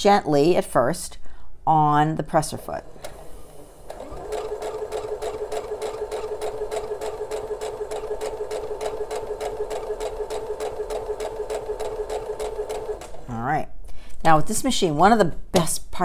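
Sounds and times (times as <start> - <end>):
sewing machine motor humming: 2.8 - 13.3
sewing machine needle clicking: 3.9 - 13.2.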